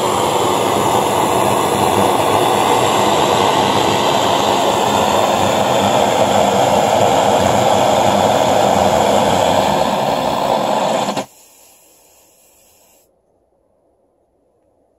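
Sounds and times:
blowtorch burning with rushing noise: 0.0s - 13.0s
faint hiss: 0.0s - 13.5s.

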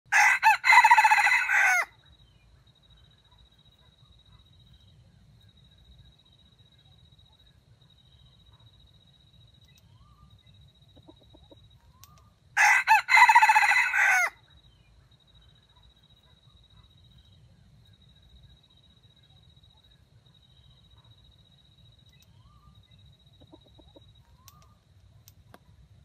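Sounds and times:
rooster crowing: 0.1s - 2.0s, 12.6s - 14.4s.

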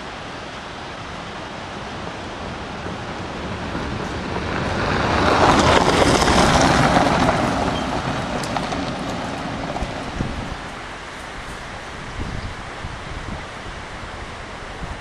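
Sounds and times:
car driving past on gravel: 2.0s - 10.8s.

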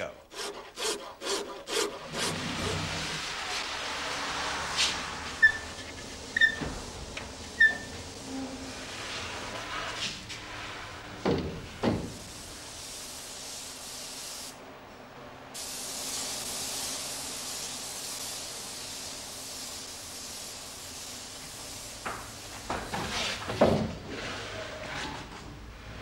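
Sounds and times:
spray gun hissing: 11.6s - 14.6s, 15.6s - 23.4s.

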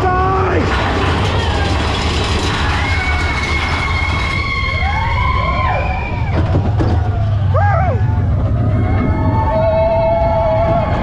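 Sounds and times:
roller coaster rumbling on track: 0.0s - 11.0s
riders screaming: 0.3s - 11.0s
long high whine: 7.0s - 11.0s.

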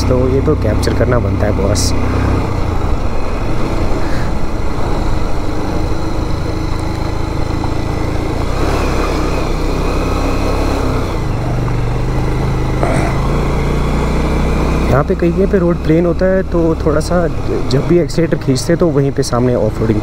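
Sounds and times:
motorcycle engine running: 0.0s - 20.0s
steady rushing noise: 0.4s - 11.9s.

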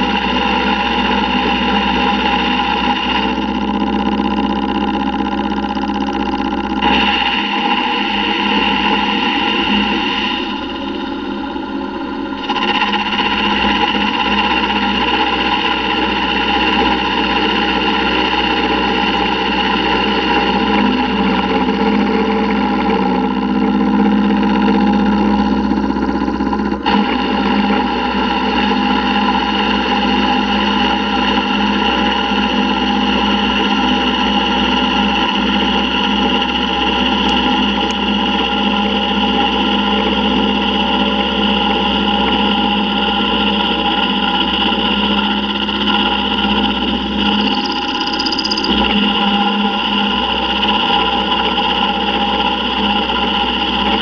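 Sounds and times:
milling machine cutting metal: 42.8s - 54.0s.

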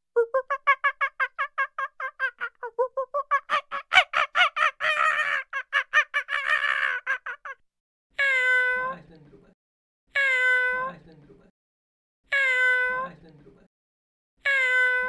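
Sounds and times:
animal yelping calls: 3.2s - 7.6s
meow-like calls: 8.2s - 8.9s, 10.2s - 10.9s, 12.3s - 13.1s, 14.4s - 15.0s.

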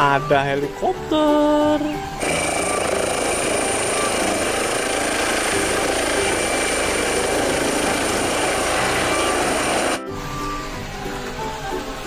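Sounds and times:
helicopter rotor and turbine: 2.2s - 10.0s.

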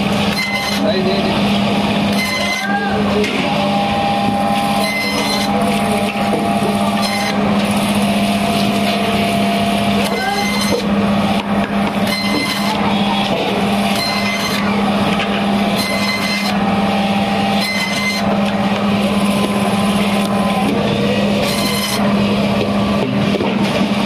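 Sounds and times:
band saw cutting fish: 0.0s - 24.0s
saw blade rasp: 21.4s - 22.1s.

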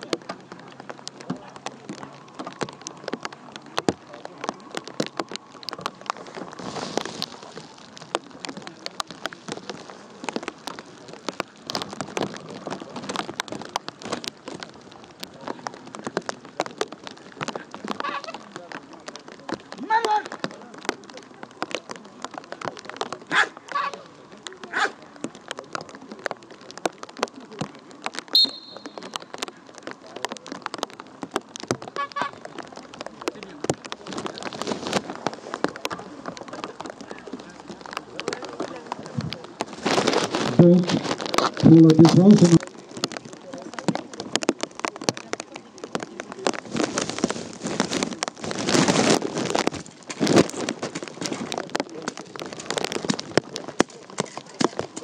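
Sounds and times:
rain pattering: 0.0s - 55.0s
high whistle blast: 28.4s - 28.9s.

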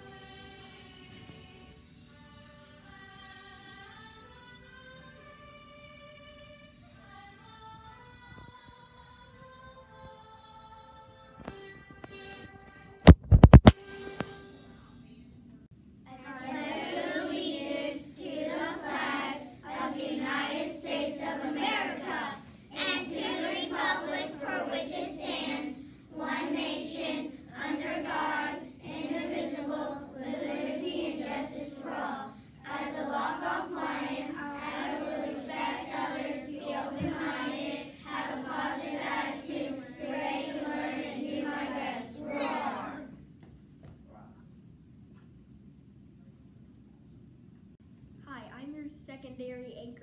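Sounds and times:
children reciting in unison: 16.1s - 43.1s.

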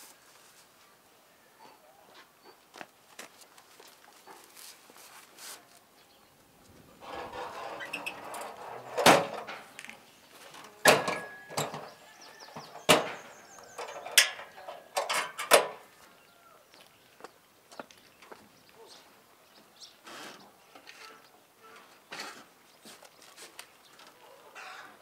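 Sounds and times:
rustling and scraping: 3.2s - 5.9s, 6.6s - 15.8s, 20.0s - 24.2s
sharp knocks and clatters: 7.0s - 9.8s, 10.9s - 15.8s.

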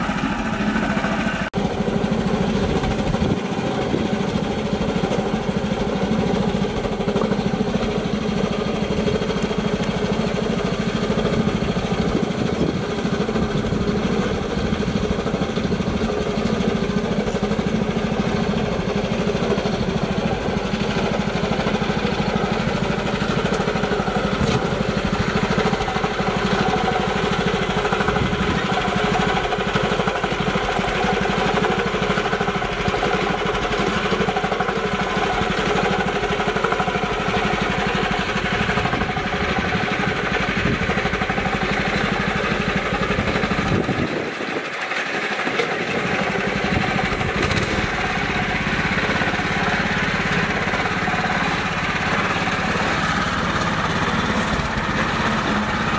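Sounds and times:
small tractor engine running: 0.0s - 55.9s.

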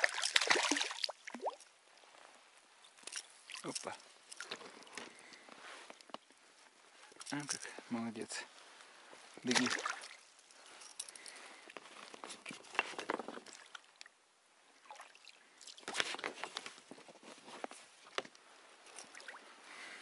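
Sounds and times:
kayak paddle splashing: 0.0s - 1.6s.

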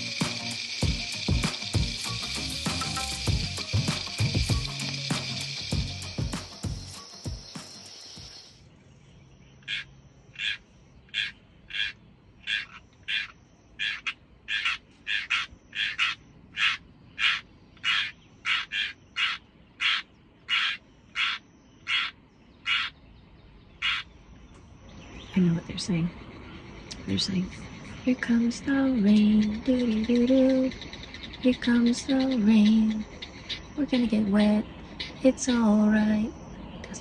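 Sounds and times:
background music: 0.0s - 8.3s
bird calling: 0.0s - 8.6s, 9.5s - 37.0s.

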